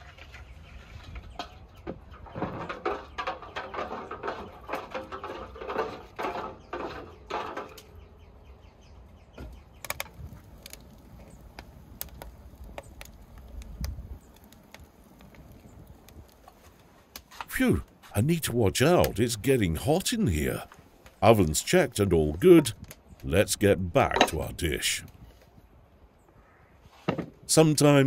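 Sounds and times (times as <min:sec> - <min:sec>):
wood fire crackling and popping: 0:09.4 - 0:25.2.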